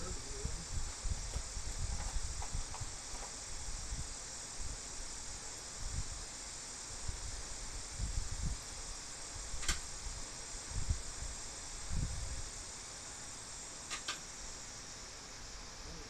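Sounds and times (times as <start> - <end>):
steady high hiss: 0.0 - 16.0
sharp click: 9.6 - 9.8, 13.9 - 14.2.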